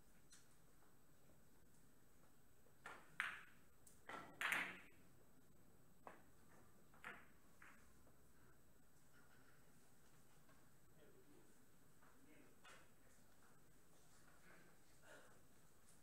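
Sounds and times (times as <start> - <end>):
billiard balls clicking: 2.8 - 5.0, 6.0 - 8.0.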